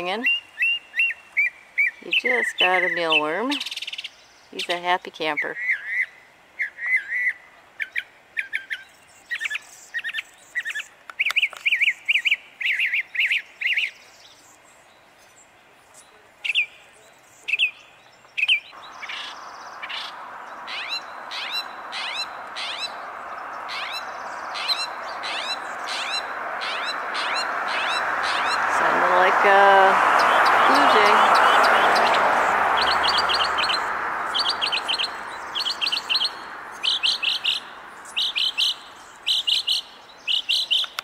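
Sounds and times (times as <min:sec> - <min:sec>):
mockingbird singing: 0:00.0 - 0:14.4, 0:16.0 - 0:41.0
rushing noise: 0:18.8 - 0:36.7.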